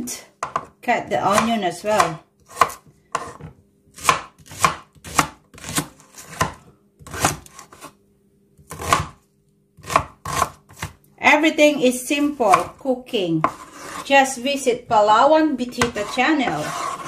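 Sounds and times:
knife slicing onion: 1.3s - 8.0s, 8.6s - 9.2s, 9.8s - 11.0s, 13.4s - 14.6s, 15.6s - 17.0s.

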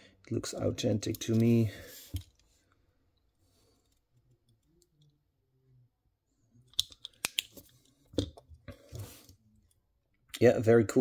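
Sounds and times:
metal objects clicking and knocking: 6.7s - 8.4s.

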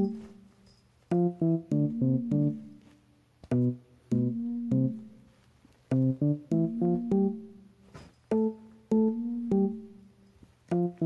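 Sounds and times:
keyboard notes in quick runs: 1.1s - 2.8s, 3.5s - 5.2s, 5.9s - 7.6s, 8.3s - 10.0s.

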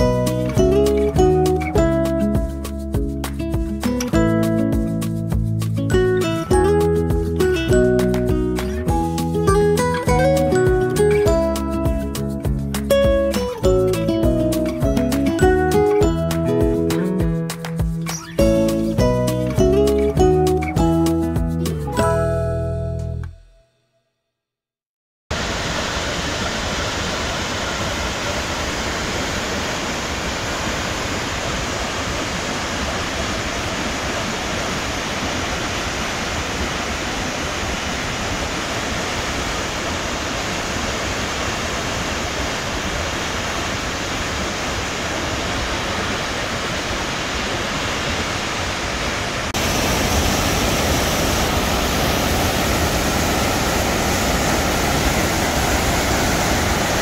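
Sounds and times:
waterfall rushing: 25.3s - 57.0s.

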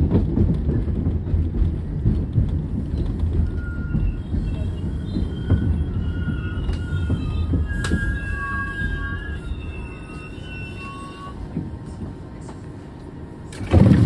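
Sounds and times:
subway train rumbling past: 0.0s - 14.0s
high wheel squeals: 2.8s - 12.1s.

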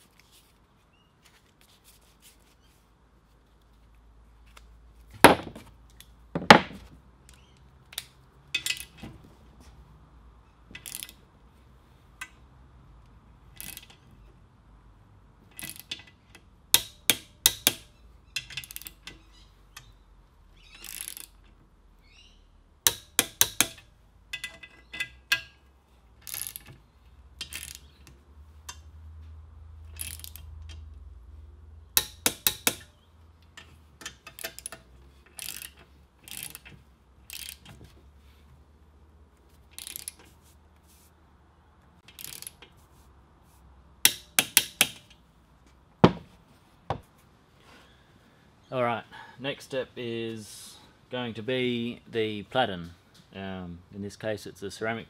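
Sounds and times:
sharp knocks: 5.2s - 5.7s, 6.4s - 6.9s, 46.0s - 47.0s
torque wrench clicking: 10.8s - 11.2s, 13.6s - 14.0s, 15.5s - 16.1s, 16.7s - 19.9s, 20.6s - 21.4s, 22.8s - 25.5s, 26.2s - 26.8s, 27.4s - 28.1s, 29.9s - 30.9s, 32.0s - 36.7s, 37.3s - 37.7s, 39.7s - 40.2s, 42.0s - 42.7s, 44.0s - 45.2s.

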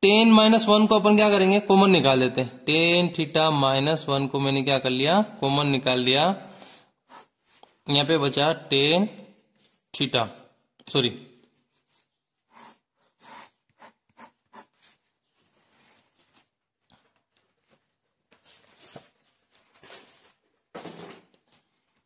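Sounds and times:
pen scratching on paper: 7.0s - 7.6s, 11.9s - 15.0s.

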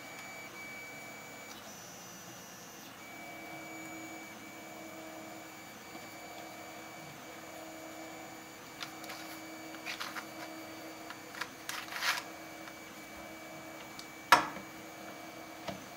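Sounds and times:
plastic pieces clicking and scraping: 8.8s - 10.5s, 11.1s - 12.8s.

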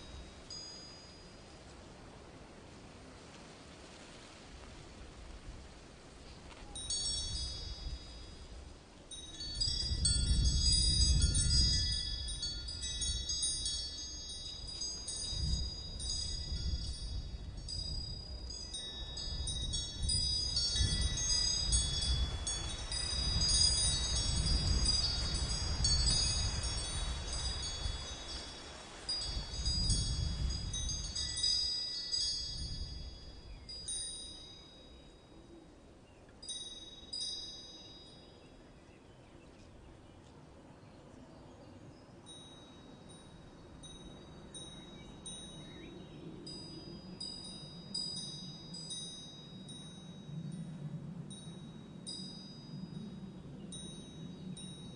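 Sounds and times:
wind chimes tinkling: 0.0s - 1.8s, 6.6s - 35.6s, 36.4s - 38.6s, 42.2s - 54.9s.

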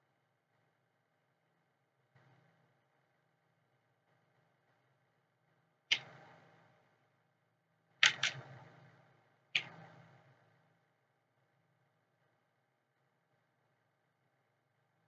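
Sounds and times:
computer keyboard keystrokes: 8.0s - 8.4s.

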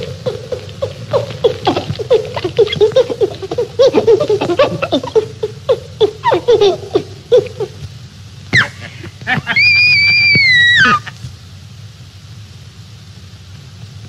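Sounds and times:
ape grunting hoots: 0.0s - 7.8s.

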